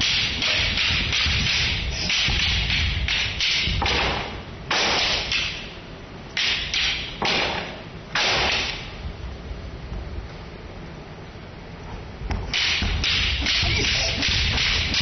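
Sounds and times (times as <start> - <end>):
sticks clacking together: 0.0 - 4.2, 12.5 - 15.0.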